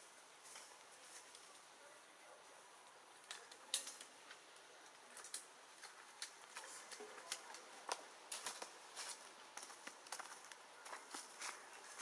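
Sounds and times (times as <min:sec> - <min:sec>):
faint steady background noise: 0:00.0 - 0:12.0
sharp clicks and crackles: 0:03.2 - 0:08.7.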